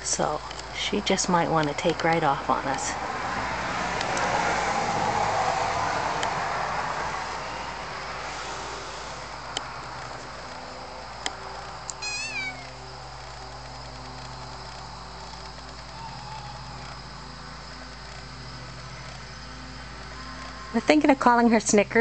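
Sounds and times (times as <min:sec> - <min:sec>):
kitten meowing: 0:11.9 - 0:12.8.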